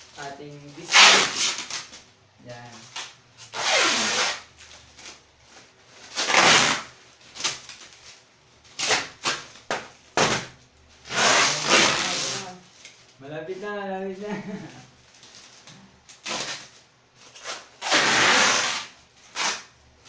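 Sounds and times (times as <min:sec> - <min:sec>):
plastic and paper wrapping tearing: 0:00.0 - 0:13.1, 0:14.2 - 0:19.8.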